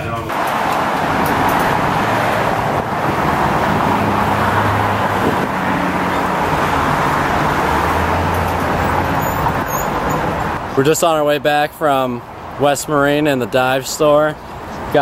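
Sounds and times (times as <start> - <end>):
low vehicle engine hum: 0.0 - 10.8
road traffic rushing: 0.0 - 15.0.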